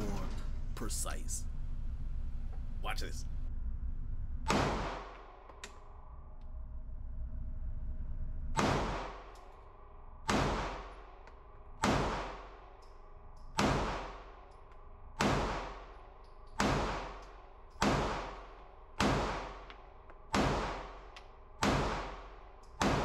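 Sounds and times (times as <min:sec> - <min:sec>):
pistol shots echoing indoors: 0:04.4 - 0:06.1, 0:08.6 - 0:23.0.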